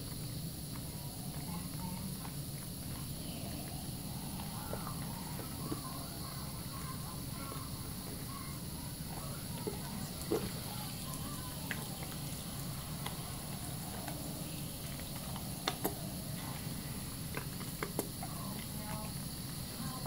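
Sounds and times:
soap lather squelching: 8.9 - 20.0.

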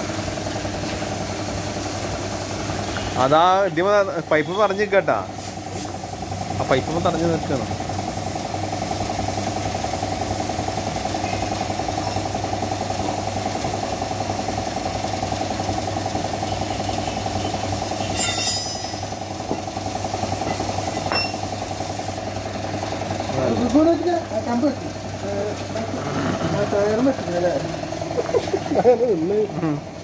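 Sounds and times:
air compressor motor running: 0.0 - 30.0
burst of air hiss: 5.3 - 6.4, 21.4 - 22.2.

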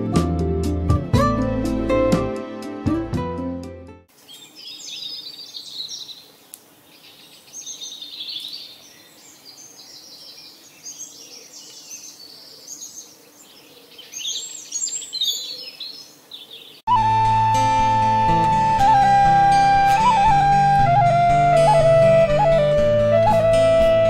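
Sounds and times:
songbirds chirping and trilling: 4.1 - 16.9.

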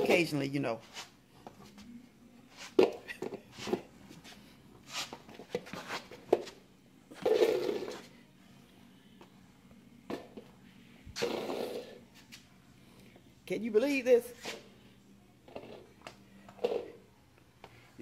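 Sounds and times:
plastic bowl scraping on floor: 7.2 - 8.1.

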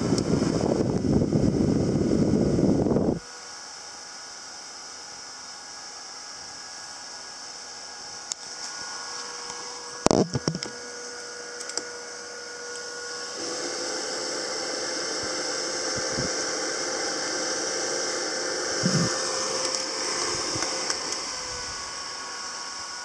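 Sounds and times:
handheld fan whirring: 0.0 - 23.0
plastic knocks: 10.1 - 10.7.

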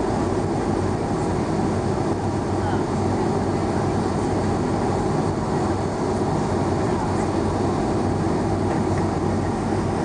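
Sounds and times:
jet engines idling rumble: 0.0 - 10.0.

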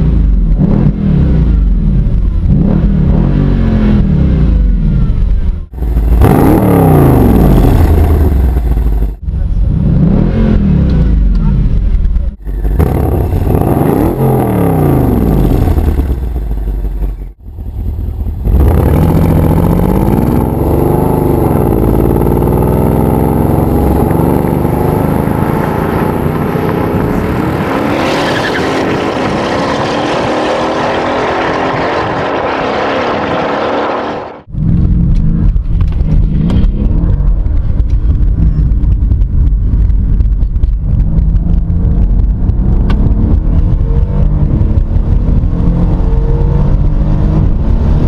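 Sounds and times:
car engine revving: 0.0 - 48.0
car accelerating hard: 18.4 - 48.0.

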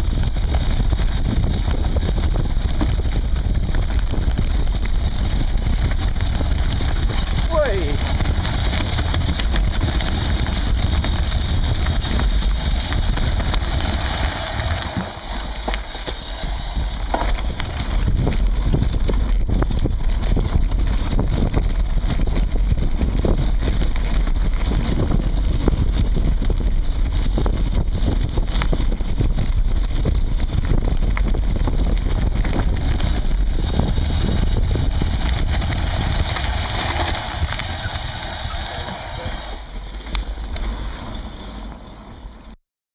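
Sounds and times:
bike knocks and rattles: 0.0 - 41.8
wind and tyres rumbling: 0.0 - 42.6.

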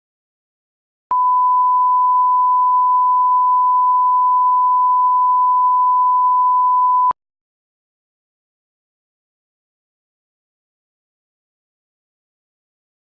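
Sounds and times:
sine test tone: 1.1 - 7.2.

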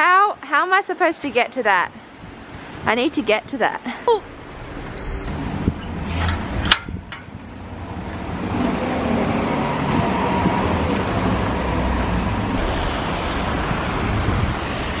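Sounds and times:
car tyres hissing on wet road: 11.8 - 15.0.

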